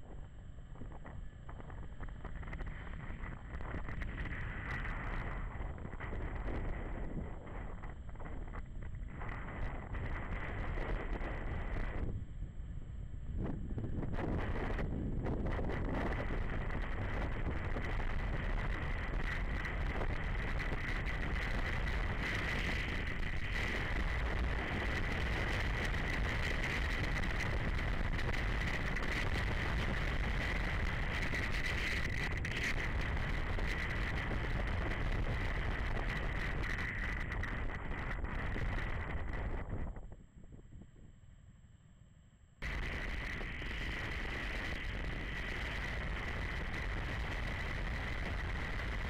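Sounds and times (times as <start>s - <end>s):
wind rushing over microphone: 0.0s - 41.2s, 42.6s - 49.0s.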